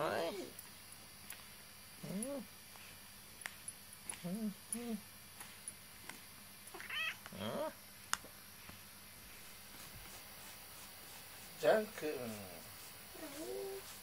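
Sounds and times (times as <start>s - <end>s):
cat meowing: 6.8s - 7.2s.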